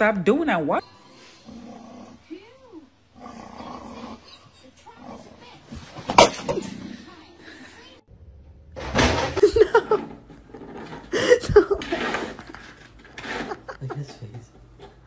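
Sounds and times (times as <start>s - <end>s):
person laughing: 9.4s - 10.2s, 11.1s - 14.4s.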